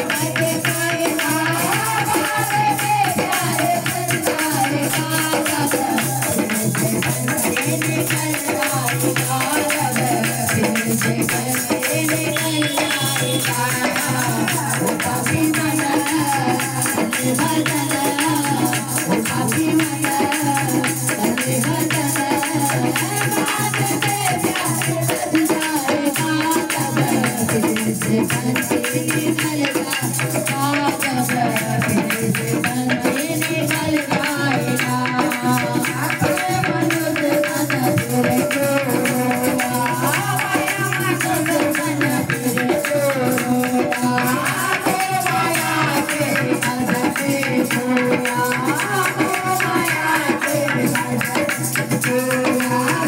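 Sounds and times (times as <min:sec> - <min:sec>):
hand percussion with jingles: 0:00.0 - 0:53.0
voices singing a hymn: 0:30.6 - 0:51.2.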